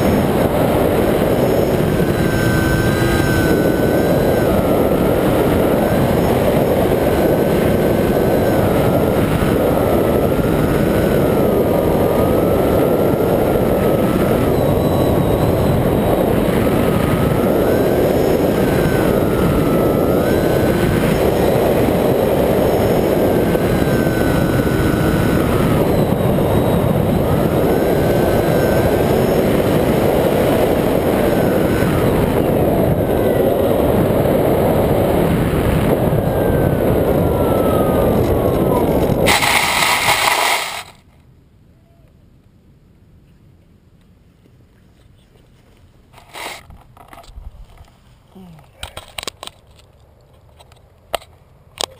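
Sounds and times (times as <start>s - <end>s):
electric motor and propeller: 0.0s - 41.2s
wind rush over camera: 0.0s - 41.2s
faint whine: 0.0s - 49.8s.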